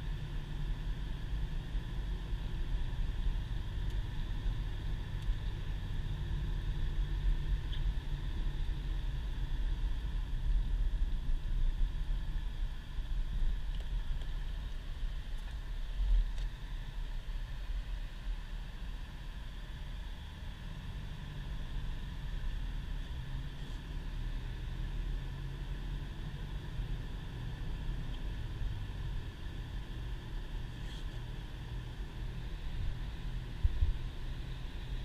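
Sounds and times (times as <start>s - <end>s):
car engine running: 0.0s - 35.0s
faint hiss: 0.0s - 35.0s.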